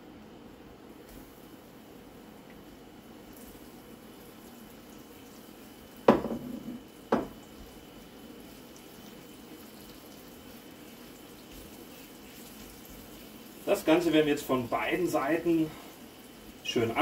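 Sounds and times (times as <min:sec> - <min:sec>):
chicken frying in oil: 0:01.0 - 0:17.0
wooden spatula knocking on pan: 0:06.1 - 0:07.4.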